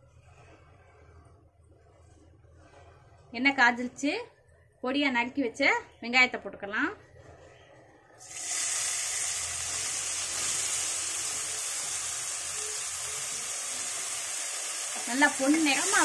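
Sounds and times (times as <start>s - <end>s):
onions sizzling in hot oil: 8.2s - 16.0s.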